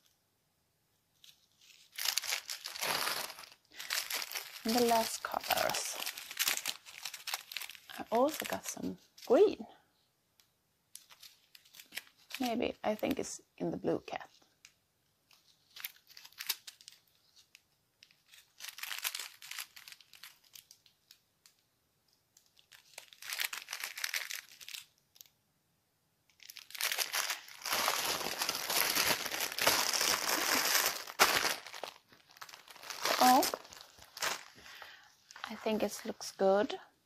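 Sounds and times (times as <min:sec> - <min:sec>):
plastic bags crinkling: 0:01.2 - 0:09.5, 0:11.0 - 0:13.1, 0:15.3 - 0:21.6, 0:22.4 - 0:25.3, 0:26.3 - 0:36.2.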